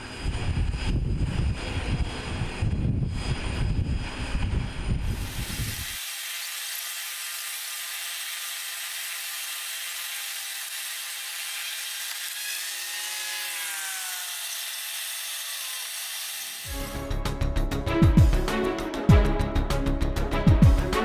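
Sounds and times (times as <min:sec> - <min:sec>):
aircraft turbine whine: 0:00.0 - 0:06.6.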